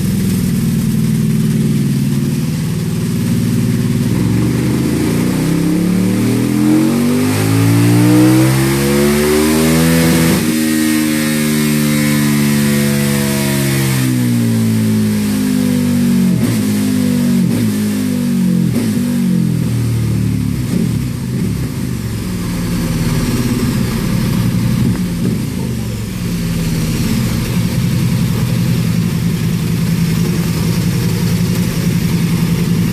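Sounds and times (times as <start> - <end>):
motorcycle engine idling: 0.0 - 6.1, 19.3 - 32.9
motorcycle engine winding down: 0.0 - 16.7, 18.5 - 32.9
sharp exhaust cracks: 20.6 - 32.9.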